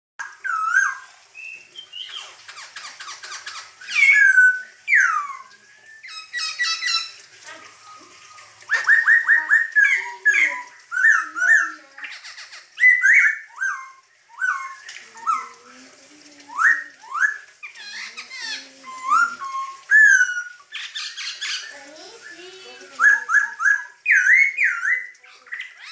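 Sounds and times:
bird singing whistled notes: 0.3 - 2.3, 3.8 - 7.2, 7.8 - 11.7, 12.8 - 15.5, 18.8 - 25.9.

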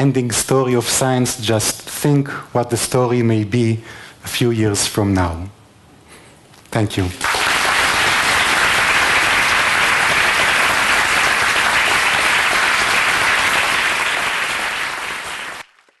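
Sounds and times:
audience applauding: 7.2 - 16.0.

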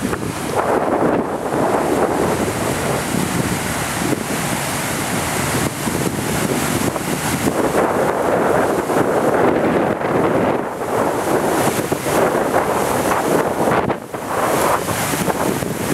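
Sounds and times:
water rushing and churning: 0.0 - 15.9
wind buffeting microphone: 0.0 - 15.9.

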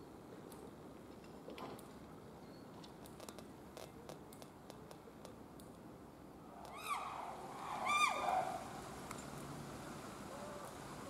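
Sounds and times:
animal calls sliding down: 6.6 - 8.9.

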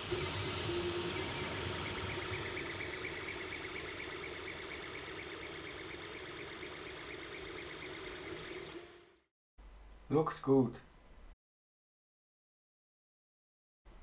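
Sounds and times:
printer fans whirring: 0.0 - 9.2
fast pulsing whine: 0.0 - 9.3.

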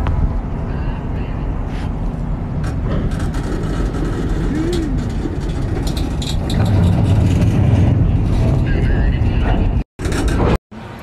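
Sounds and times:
freight train rumbling past: 0.0 - 11.0
wheels clacking over rails: 2.6 - 10.6.

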